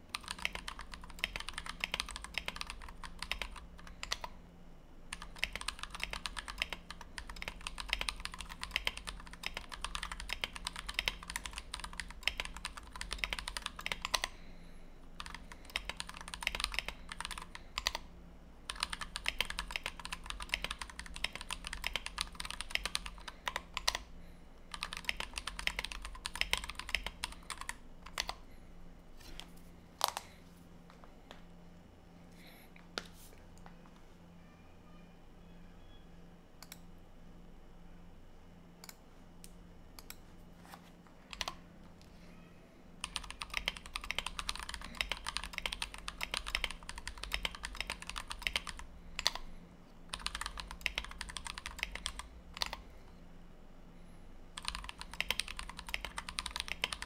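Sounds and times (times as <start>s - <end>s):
mechanical keyboard typing: 0.1s - 4.3s, 5.1s - 14.3s, 15.2s - 18.1s, 18.7s - 24.1s, 24.7s - 28.4s, 41.3s - 41.6s, 43.0s - 49.4s, 50.1s - 52.8s, 54.6s - 57.0s.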